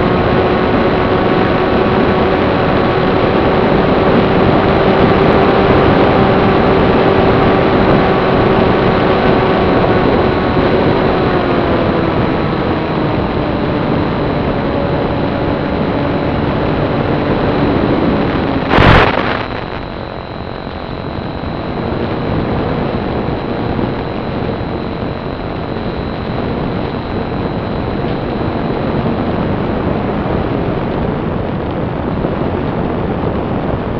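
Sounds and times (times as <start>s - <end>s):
electric motor whine: 0.0s - 31.0s
wind rush: 0.0s - 33.9s
loud burst of noise: 16.0s - 33.9s.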